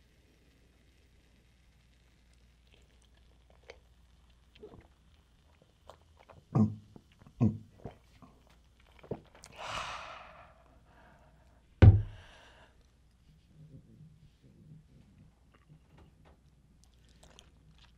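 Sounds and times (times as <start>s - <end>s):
person gulping and swallowing: 2.6s - 9.6s, 16.8s - 17.9s
breathy exhale: 9.6s - 11.5s, 12.1s - 12.8s
loud thunk: 11.8s - 12.2s.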